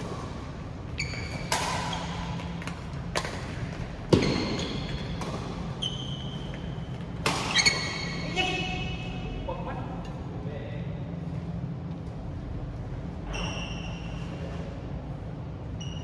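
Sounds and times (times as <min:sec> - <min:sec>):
shoes squeaking on court floor: 0:00.8 - 0:09.0, 0:13.2 - 0:14.7
rackets striking shuttlecock: 0:01.1 - 0:05.8, 0:06.6 - 0:08.0.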